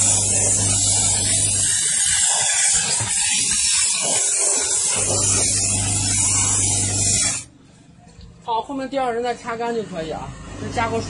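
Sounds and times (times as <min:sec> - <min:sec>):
steam spray gun hissing: 0:00.0 - 0:07.5.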